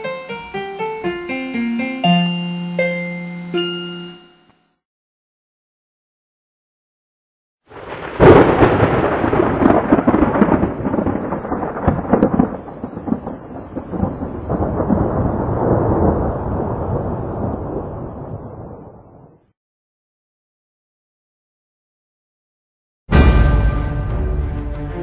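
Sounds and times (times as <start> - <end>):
thunder rumbling and cracking: 7.7 - 19.4.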